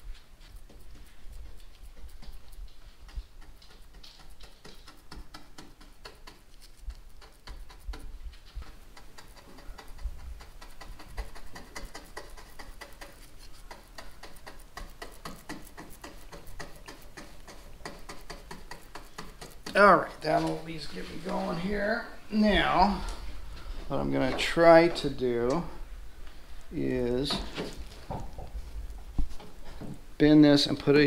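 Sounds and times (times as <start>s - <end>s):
brush scratching on wood: 0.0s - 22.9s.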